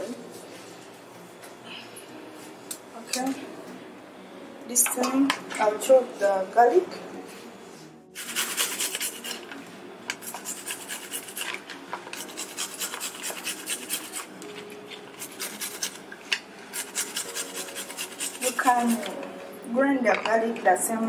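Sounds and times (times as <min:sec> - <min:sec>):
garlic grated on metal grater: 0:08.2 - 0:09.5, 0:10.2 - 0:16.1, 0:16.7 - 0:19.2.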